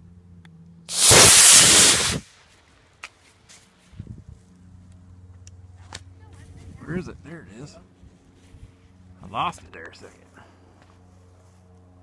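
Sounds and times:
rocket motor hissing: 0.9 - 2.3.

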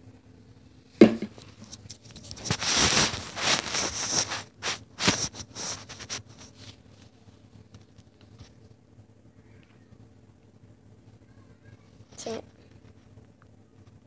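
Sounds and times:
phone knocking against book: 1.0 - 1.4
rustling and scraping: 1.0 - 8.7.

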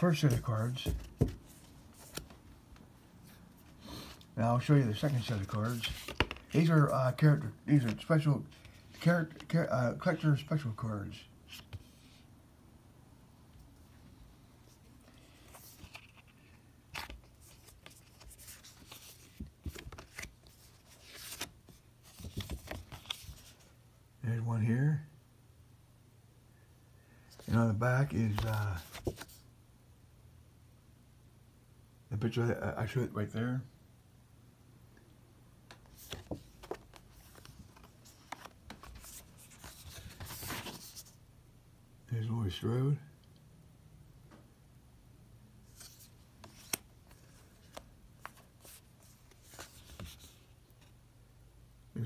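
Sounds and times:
cards and box handling: 0.0 - 2.4, 3.8 - 9.7, 15.0 - 23.6, 27.4 - 29.4, 35.7 - 41.1, 45.7 - 50.9.

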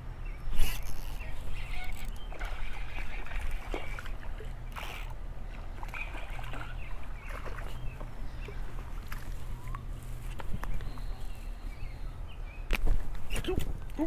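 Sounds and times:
fish splashing in water: 1.6 - 9.7.

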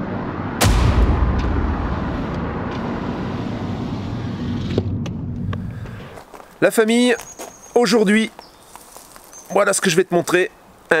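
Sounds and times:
car road and engine rumble: 0.0 - 6.3.

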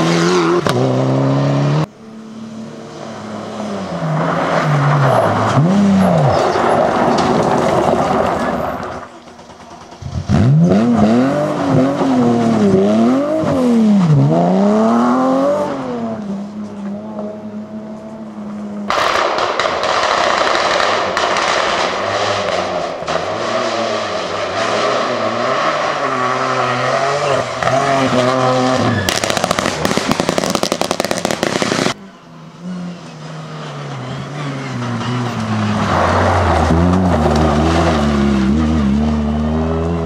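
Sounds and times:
rally car engine at high revs: 0.0 - 18.9, 21.2 - 40.0
car engine approaching: 0.0 - 19.2, 19.9 - 40.0
rapid crackle of sharp bangs: 18.9 - 22.9, 29.1 - 32.0.

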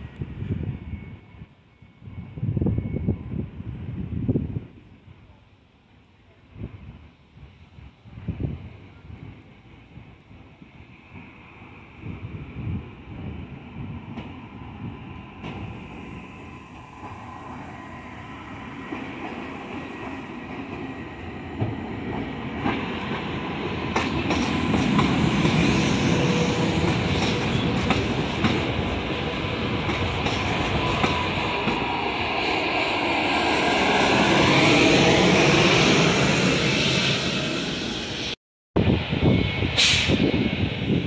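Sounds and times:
train running past: 6.8 - 41.0.

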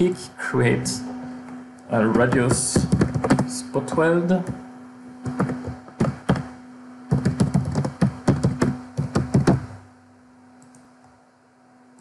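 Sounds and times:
computer keyboard typing: 2.1 - 4.6, 5.2 - 6.5, 7.1 - 9.8.

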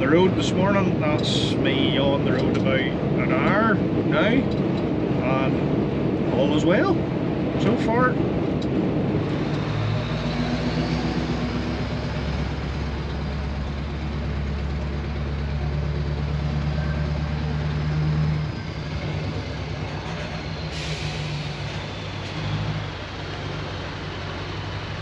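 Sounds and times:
heavy diesel engine running: 0.0 - 25.0
air hiss: 20.7 - 22.0.

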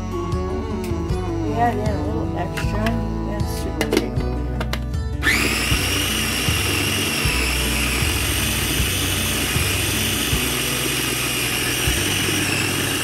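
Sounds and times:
food chopper motor whine: 5.2 - 13.0.

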